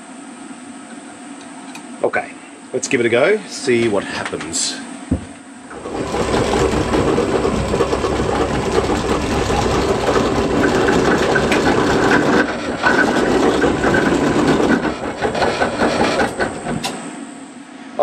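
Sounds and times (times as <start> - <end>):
drill press cutting metal: 5.7 - 17.1.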